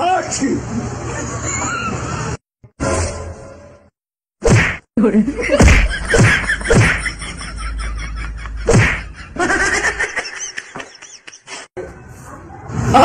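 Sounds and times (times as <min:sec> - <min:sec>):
people laughing: 0:01.0 - 0:02.1, 0:05.1 - 0:11.6
loud smacks and thuds: 0:04.4 - 0:04.8, 0:05.6 - 0:07.0, 0:08.7 - 0:09.1.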